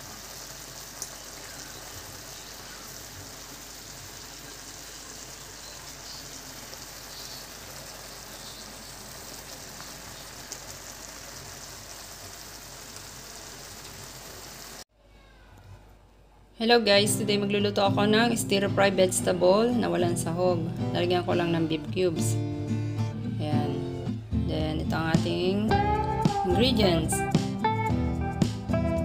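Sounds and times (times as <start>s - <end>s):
vegetables sizzling and bubbling in wok: 0.0s - 14.8s.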